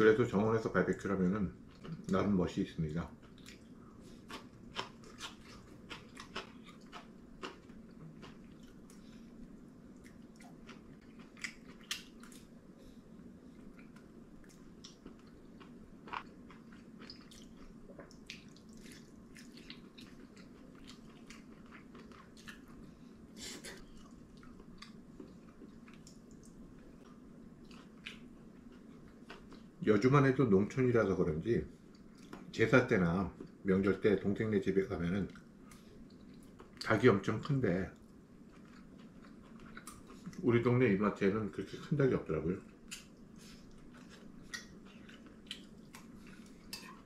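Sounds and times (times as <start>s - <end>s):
low room hum: 0.0s - 47.0s
person chewing: 3.2s - 12.6s, 13.6s - 29.7s, 38.4s - 40.4s, 42.7s - 47.0s.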